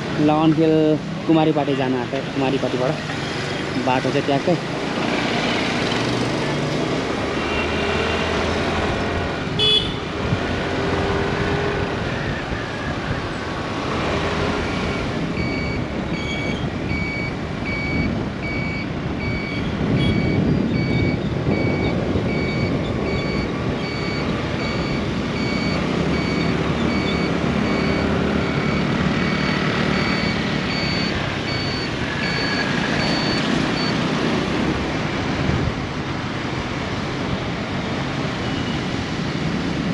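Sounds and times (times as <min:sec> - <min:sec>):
wind rush: 0:08.4 - 0:25.4, 0:32.0 - 0:39.9.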